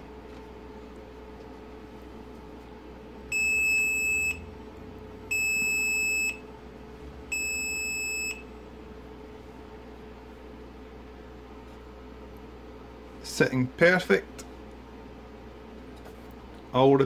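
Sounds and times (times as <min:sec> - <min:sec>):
warning buzzer beeps: 0:03.3 - 0:04.5, 0:05.3 - 0:06.4, 0:07.3 - 0:08.5.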